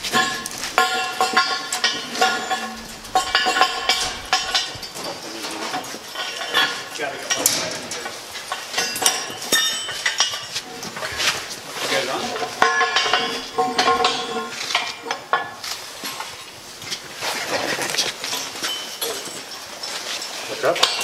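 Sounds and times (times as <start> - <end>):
metal tow bar clanking: 0.0 - 16.4.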